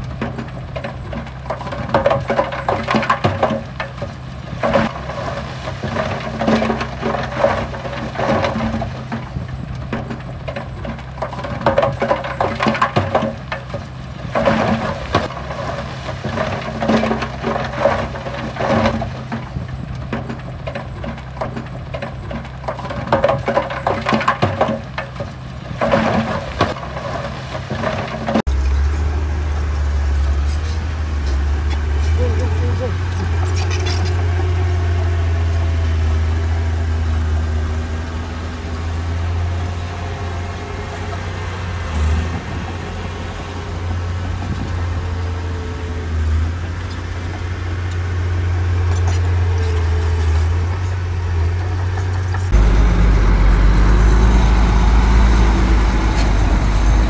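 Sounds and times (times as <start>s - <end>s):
rock clattering and grinding: 0.0s - 29.0s, 32.9s - 34.9s
deep engine drone: 0.0s - 57.0s
diesel machinery running: 0.0s - 57.0s.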